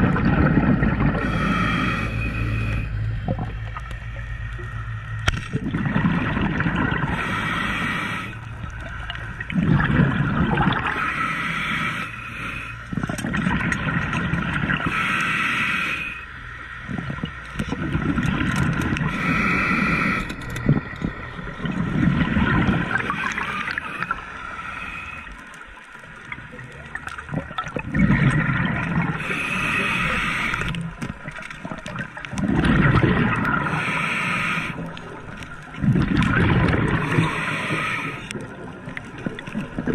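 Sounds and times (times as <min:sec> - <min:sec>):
gurgling exhaled bubbles: 0:00.0 - 0:03.9, 0:05.5 - 0:11.8, 0:12.9 - 0:15.1, 0:16.8 - 0:39.9
hissing regulator inhalations: 0:01.2 - 0:03.0, 0:07.0 - 0:08.5, 0:10.9 - 0:12.9, 0:14.8 - 0:16.4, 0:19.0 - 0:20.6, 0:22.8 - 0:25.7, 0:29.1 - 0:31.0, 0:33.6 - 0:35.0, 0:37.0 - 0:38.4.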